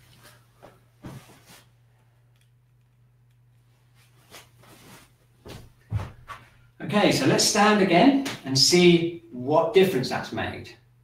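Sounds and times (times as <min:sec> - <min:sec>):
steady low hum: 0:00.0 - 0:11.0
stockinged footsteps on carpet: 0:04.8 - 0:06.6.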